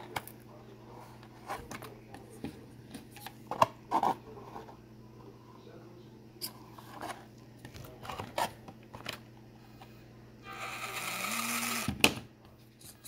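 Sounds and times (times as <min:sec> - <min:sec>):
small electric motor whirring: 0:10.4 - 0:11.9.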